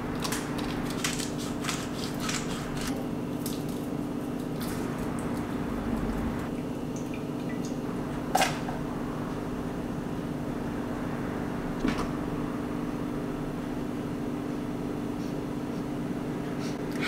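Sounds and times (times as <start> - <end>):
low hum: 7.5 - 15.7.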